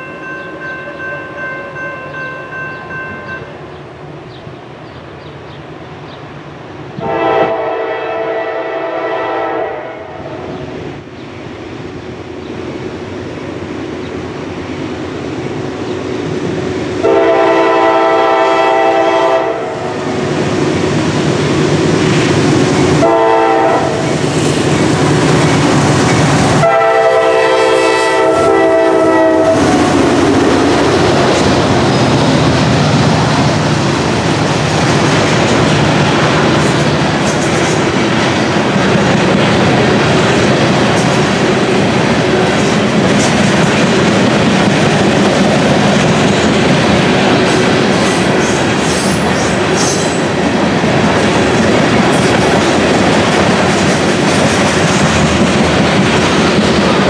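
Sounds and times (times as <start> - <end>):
locomotive horn blasts: 7.0 - 10.2, 17.0 - 19.8, 23.0 - 24.1, 26.6 - 29.7
locomotive rumble: 10.3 - 57.0
train wheels clattering over rail joints: 29.5 - 57.0.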